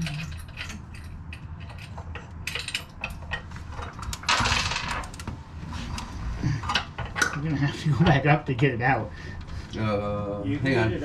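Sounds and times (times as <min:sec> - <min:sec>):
light metal clinks and knocks: 0:00.0 - 0:04.3
low steady hum: 0:00.0 - 0:11.0.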